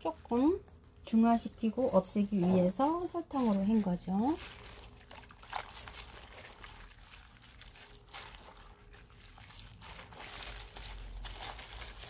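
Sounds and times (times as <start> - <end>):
plastic gloves crinkling: 0.0 - 12.0
water sloshing and dripping: 4.4 - 10.4.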